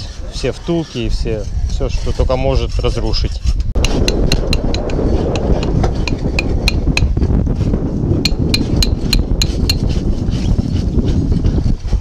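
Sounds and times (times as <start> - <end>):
hammer tapping metal tool: 6.0 - 7.1, 8.3 - 9.8.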